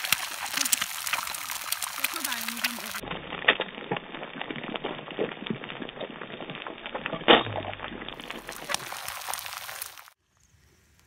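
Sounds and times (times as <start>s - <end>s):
eggs sizzling in oil: 0.0s - 7.0s, 7.8s - 10.2s.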